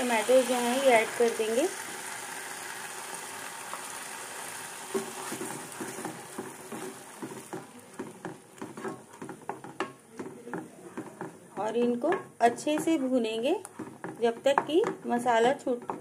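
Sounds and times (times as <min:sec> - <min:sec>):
puree sizzling in hot oil: 0:00.0 - 0:15.2
wooden spatula scraping pan: 0:04.9 - 0:16.0.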